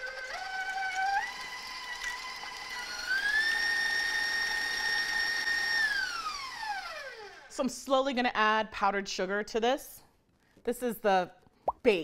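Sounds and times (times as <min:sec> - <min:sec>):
stand mixer motor whining: 0:00.0 - 0:07.5.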